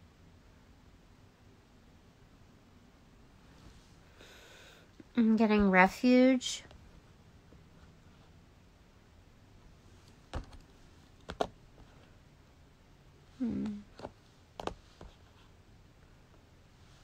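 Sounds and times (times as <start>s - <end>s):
person humming: 13.4s - 14.0s.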